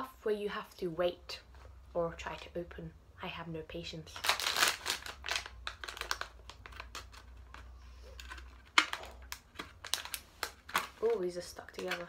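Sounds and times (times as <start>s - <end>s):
plastic wrapper crinkling: 4.0s - 12.0s.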